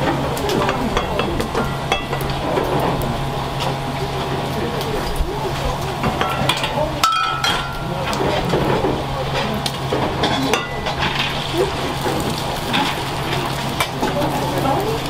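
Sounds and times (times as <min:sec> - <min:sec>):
metal pans and utensils clinking: 0:00.0 - 0:03.8, 0:05.7 - 0:15.0.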